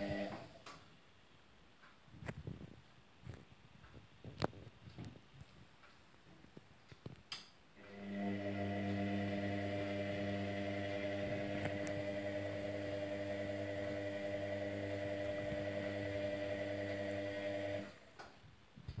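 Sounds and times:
washing machine motor humming: 0.0s - 0.5s, 7.8s - 18.1s.

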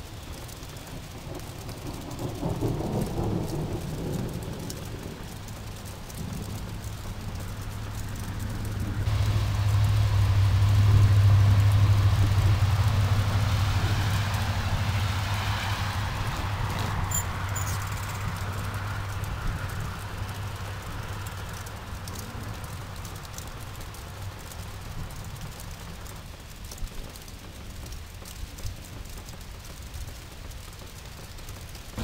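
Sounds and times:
vehicle passing rumble: 3.0s - 25.8s.

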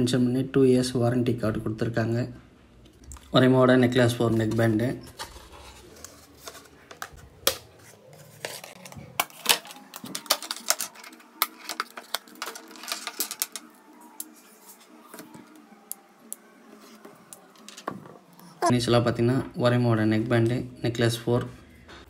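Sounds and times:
packaging clicks and taps: 8.4s - 13.7s.

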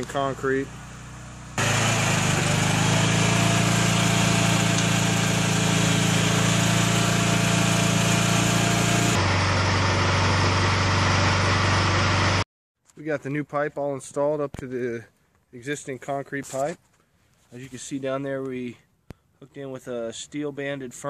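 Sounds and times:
hydraulic power unit droning: 0.0s - 12.4s.

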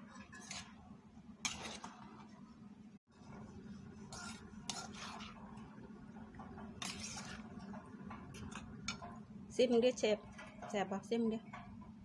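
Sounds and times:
metal spoon scraping a mortar: 0.2s - 0.8s, 1.4s - 1.9s, 4.1s - 5.4s, 6.8s - 7.4s.

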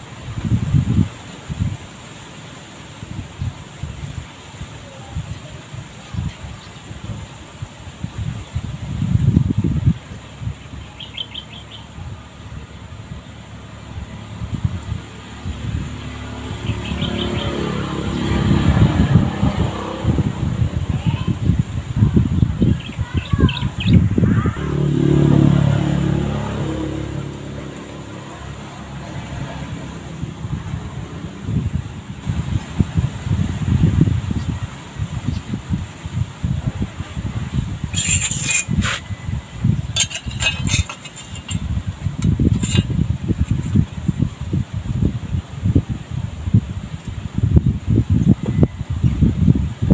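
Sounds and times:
wind buffeting microphone: 0.0s - 2.1s, 2.9s - 49.9s
low rumbling: 8.0s - 49.9s
birds chirping: 10.0s - 14.0s, 16.0s - 17.9s, 22.4s - 24.5s
vehicle engine passing by: 11.1s - 21.7s, 24.0s - 35.2s.

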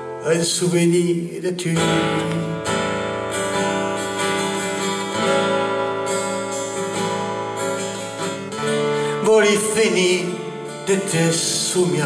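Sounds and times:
person singing: 0.0s - 2.9s, 7.9s - 12.0s
acoustic guitar strumming: 0.0s - 12.0s.

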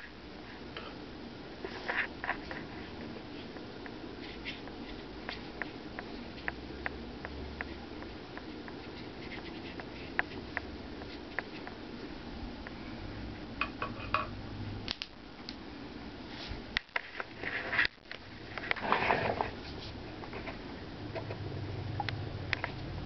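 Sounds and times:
low room hum: 0.0s - 23.0s
scrapes and rustles: 1.6s - 3.6s, 16.3s - 20.6s
faint clicks and taps: 3.4s - 11.8s.

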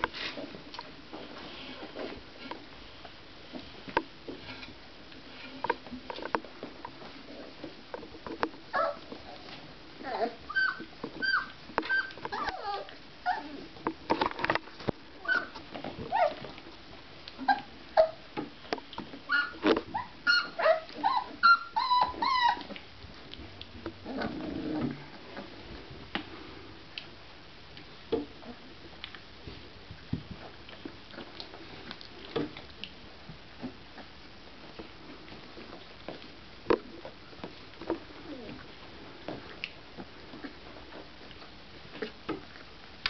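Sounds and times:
puppies whimpering and yipping: 8.7s - 9.4s, 10.0s - 13.7s, 15.2s - 16.5s, 17.4s - 18.2s, 19.3s - 22.8s.

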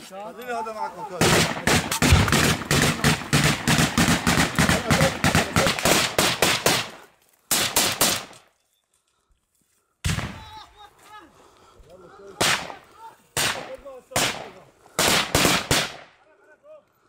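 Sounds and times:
automatic gunfire bursts: 1.2s - 6.9s.

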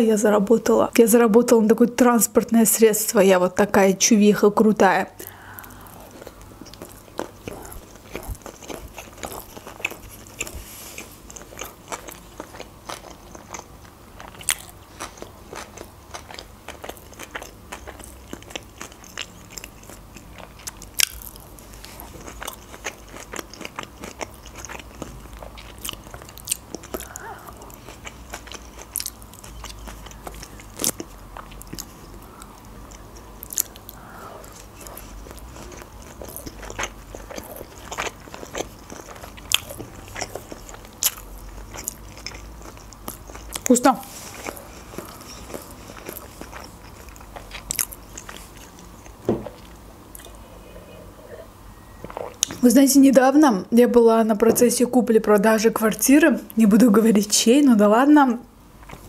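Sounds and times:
chewing and crunching food: 5.2s - 50.8s, 51.9s - 52.6s, 58.8s - 59.0s.

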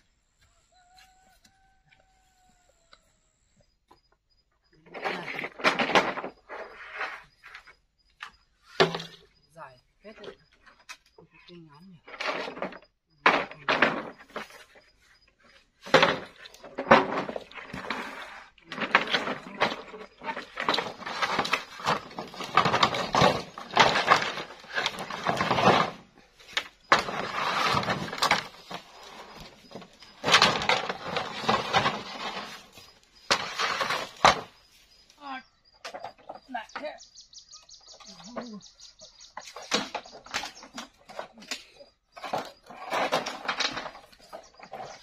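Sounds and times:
bamboo poles clattering: 4.8s - 9.4s, 12.0s - 37.0s, 39.3s - 45.0s.

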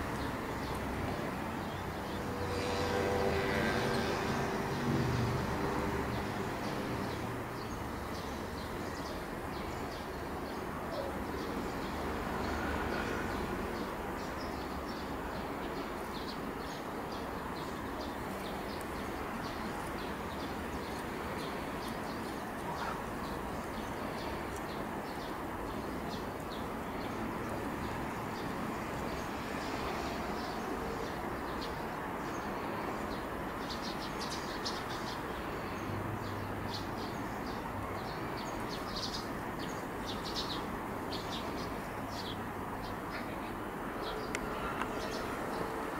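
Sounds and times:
songbirds chirping: 0.0s - 45.9s.

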